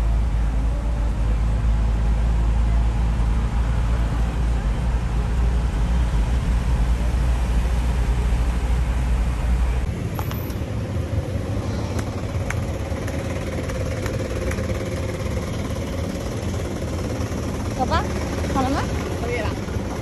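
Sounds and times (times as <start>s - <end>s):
engine and road rumble: 0.0s - 20.0s
engine hum: 0.0s - 20.0s
street noise: 0.0s - 20.0s.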